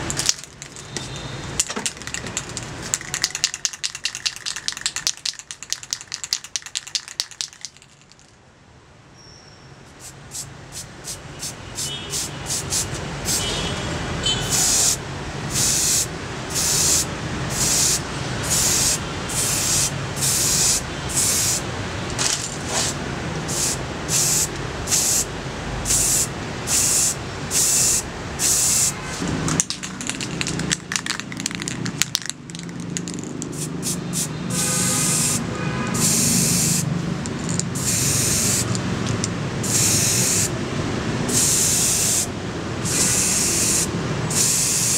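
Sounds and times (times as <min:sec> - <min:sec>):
spray can hissing: 0:00.0 - 0:08.2, 0:14.5 - 0:21.6, 0:22.7 - 0:25.3, 0:25.9 - 0:35.4, 0:36.0 - 0:40.5, 0:41.3 - 0:42.3, 0:42.9 - 0:44.9.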